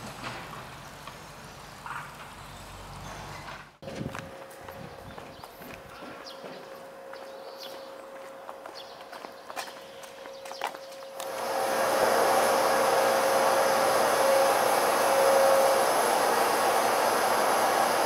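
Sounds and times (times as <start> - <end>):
faint outdoor ambience: 0.0 - 18.0
train equipment blowing hiss: 11.2 - 18.0.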